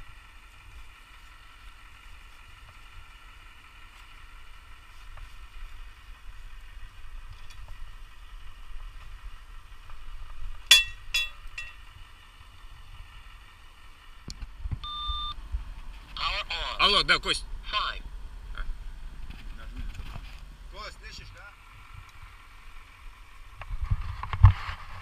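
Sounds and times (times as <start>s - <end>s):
faint mechanical hum: 0.0s - 25.0s
metallic clinks of rigging hardware: 10.7s - 11.8s.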